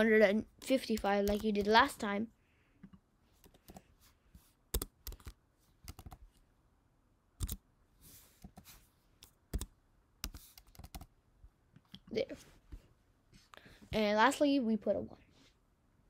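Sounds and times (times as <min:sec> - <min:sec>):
keyboard typing clicks: 0:01.0 - 0:01.7, 0:04.7 - 0:06.2, 0:07.4 - 0:07.6.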